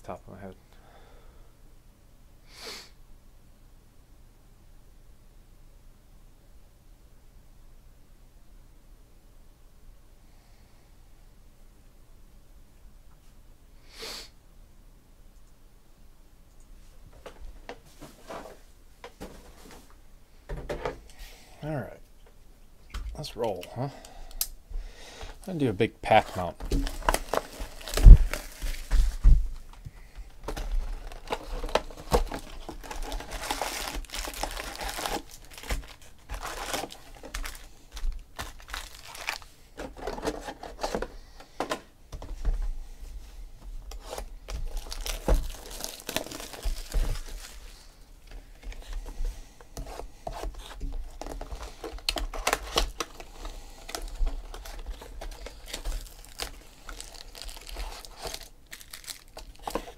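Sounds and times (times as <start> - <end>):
card packs crinkling and tearing: 25.4 - 41.1, 43.9 - 48.9, 49.8 - 59.9
heavy thumps: 26.6 - 30.8.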